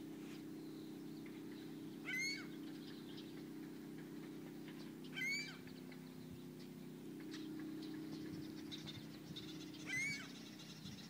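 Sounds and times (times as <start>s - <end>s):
steady low hum: 0.0s - 11.0s
gull calling: 2.0s - 6.0s, 7.2s - 10.8s.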